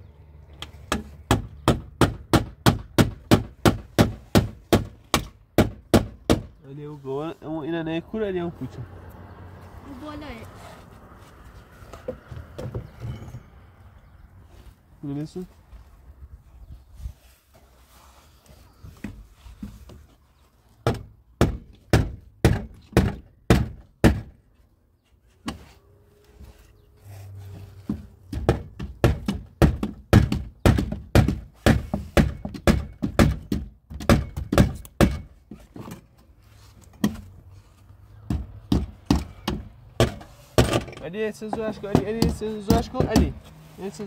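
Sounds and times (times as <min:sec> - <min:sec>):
hatchet knocking on plywood: 0:41.5 - 0:43.4.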